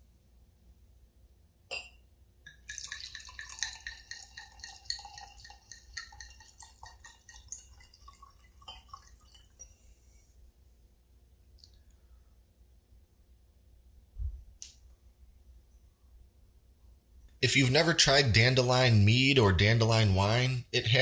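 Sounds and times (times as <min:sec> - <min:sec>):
liquid pouring into a glass: 0:02.5 - 0:09.8.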